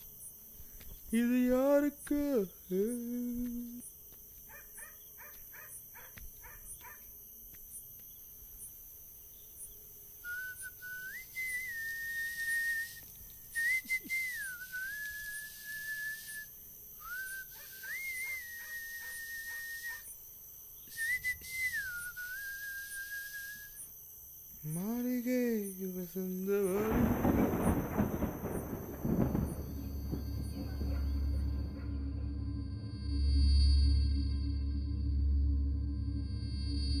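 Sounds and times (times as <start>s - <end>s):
crickets chirping faintly: 0.0s - 37.0s
person whistling a slow tune: 10.2s - 20.0s, 20.8s - 23.8s.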